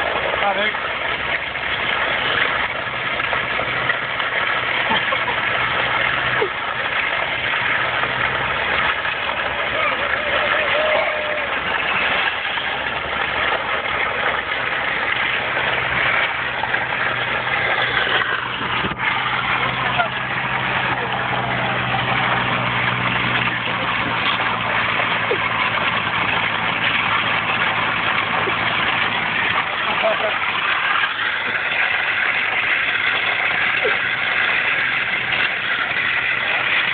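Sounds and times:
tyres hissing on gravel: 0.0s - 36.9s
vehicle engine running: 0.0s - 36.9s
pallet dragged over gravel: 8.6s - 36.9s.

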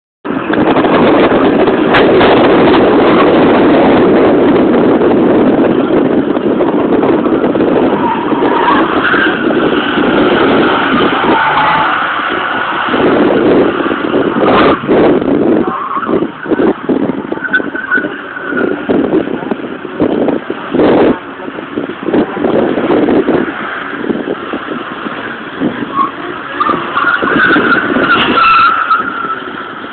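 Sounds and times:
car engine under load: 0.2s - 29.9s
tires squealing: 0.3s - 29.9s
tyre squeal: 7.9s - 12.4s, 25.9s - 29.6s.

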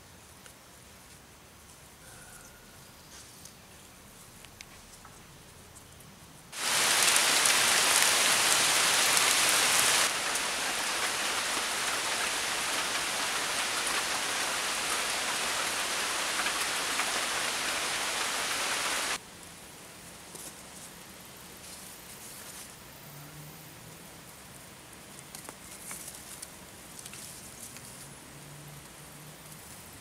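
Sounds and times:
heavy rain: 6.6s - 19.2s.

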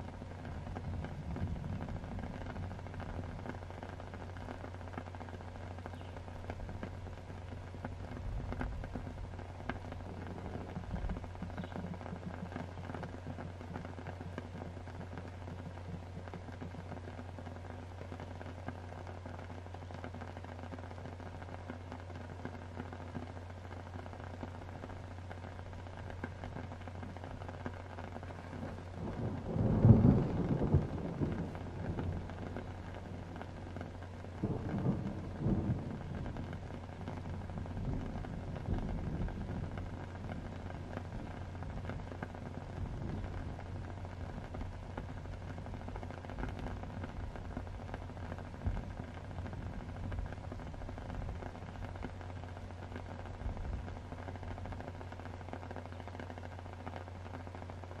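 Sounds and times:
low constant hum: 0.0s - 58.0s
steady rain: 0.0s - 58.0s
thunder rolling: 0.4s - 3.6s, 28.6s - 52.1s.

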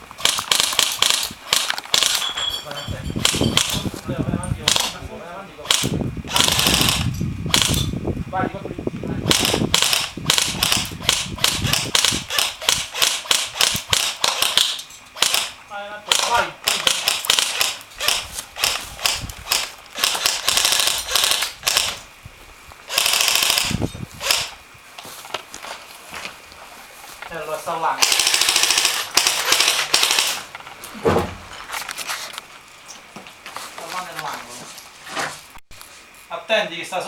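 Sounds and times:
replica guns firing: 0.2s - 2.2s, 3.2s - 3.8s, 4.6s - 5.0s, 5.6s - 7.9s, 9.3s - 22.0s, 22.9s - 24.5s, 28.0s - 30.5s.

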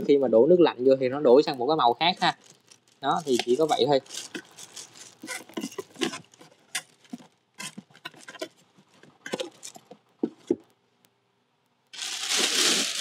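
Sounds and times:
plastic bag rustling: 1.9s - 10.5s, 12.0s - 13.0s.

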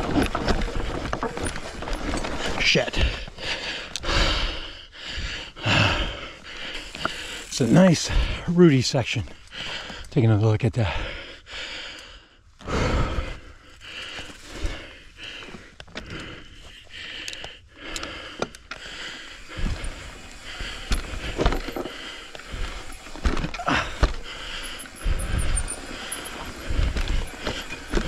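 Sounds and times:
bike tyres knocking over roots: 0.0s - 3.3s, 19.0s - 28.0s
bike rattling: 0.0s - 4.2s, 5.6s - 9.9s, 13.8s - 16.4s, 18.0s - 28.0s.

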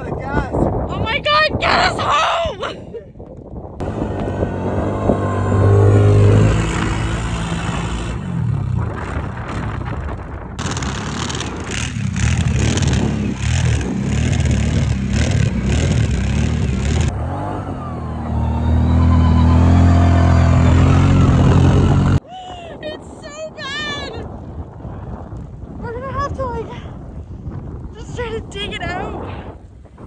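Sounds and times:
quad engine revving: 3.8s - 9.8s, 10.6s - 22.2s
wheels spinning in snow: 3.8s - 22.2s.

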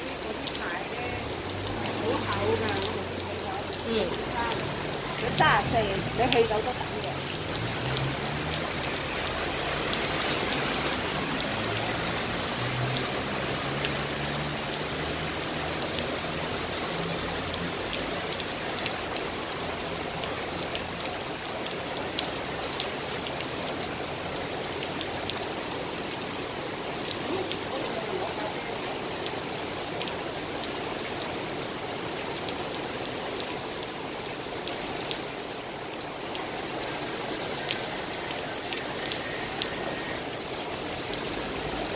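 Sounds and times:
heavy rain on pavement: 0.0s - 41.9s
passing traffic hum: 0.0s - 41.9s
raindrops striking close by: 0.0s - 41.9s.

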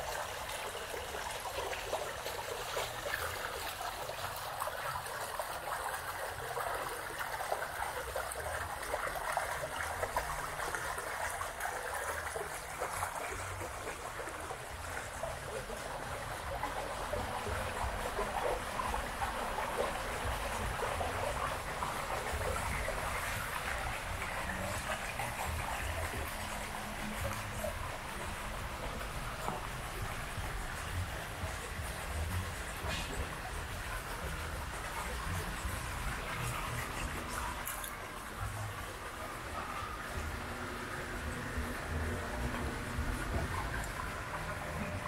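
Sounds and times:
water trickling: 0.0s - 45.0s.

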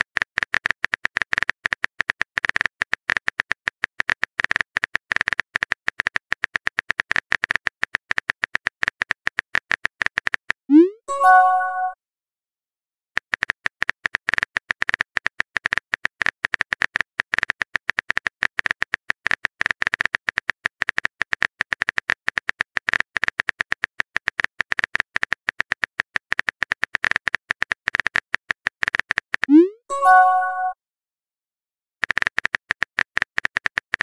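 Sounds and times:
phone keyboard typing clicks: 13.2s - 30.8s, 32.0s - 34.0s.

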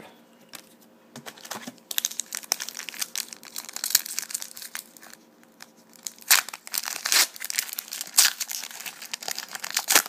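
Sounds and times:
foil wrapper crinkling and tearing: 1.4s - 10.0s.

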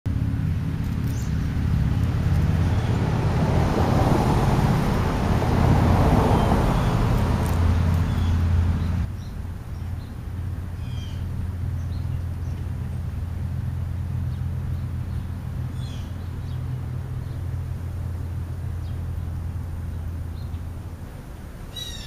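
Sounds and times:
road traffic noise: 0.1s - 22.0s
bird chirps: 7.9s - 10.2s, 10.8s - 12.7s, 14.3s - 17.5s, 21.7s - 22.0s.

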